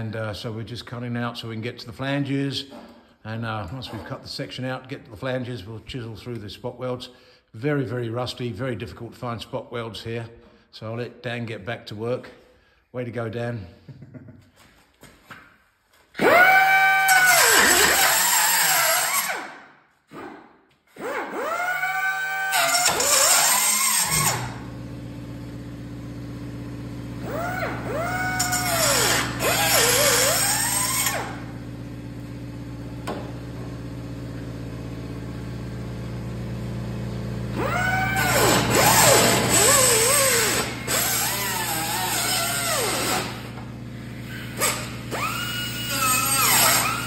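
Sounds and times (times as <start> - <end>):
cutoff tool whining through metal: 16.2 - 20.4, 21.0 - 24.8, 27.2 - 31.6, 37.5 - 47.0.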